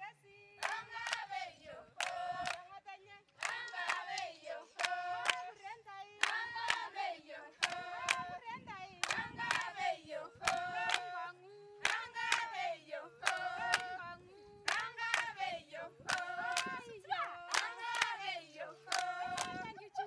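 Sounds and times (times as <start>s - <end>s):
women singing unaccompanied: 0.0s - 20.0s
double hand claps: 0.6s - 1.3s, 2.0s - 2.6s, 3.4s - 5.5s, 6.2s - 6.9s, 7.6s - 8.3s, 9.0s - 9.8s, 10.5s - 11.1s, 11.8s - 12.6s, 13.2s - 14.0s, 14.7s - 15.4s, 16.1s - 16.7s, 17.5s - 18.3s, 18.9s - 19.6s.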